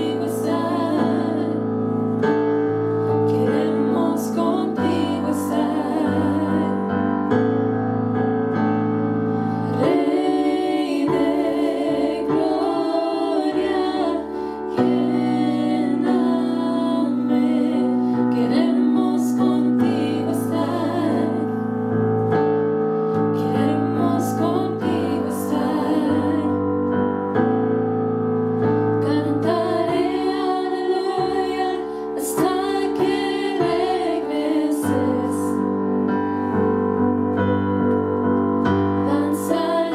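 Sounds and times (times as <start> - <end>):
women singing into microphones: 0.0 - 1.7, 3.1 - 7.2, 9.6 - 21.7, 23.4 - 26.6, 29.0 - 35.7, 39.0 - 39.9.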